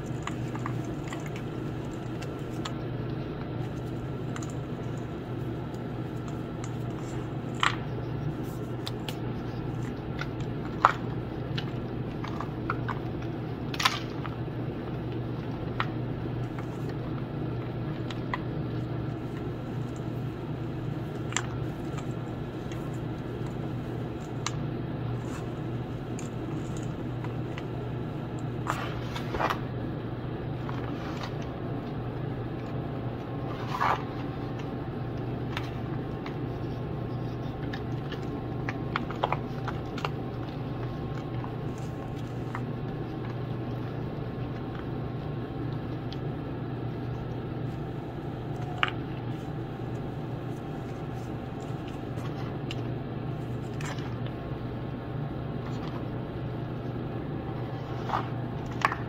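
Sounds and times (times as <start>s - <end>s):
hands crumbling chalk blocks: 0.0s - 29.6s, 30.5s - 44.8s
steady low hum: 0.0s - 59.0s.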